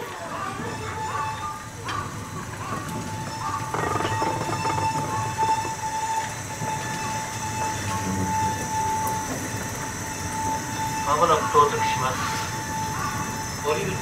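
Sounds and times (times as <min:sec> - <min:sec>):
steady high tone: 0:00.0 - 0:14.0
train coaches rumbling past: 0:00.0 - 0:14.0.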